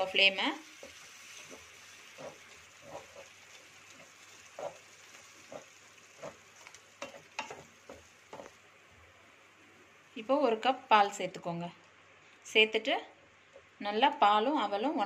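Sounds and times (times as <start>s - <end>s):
faint sizzling: 0.0s - 15.0s
spatula scraping a pan: 0.7s - 8.6s.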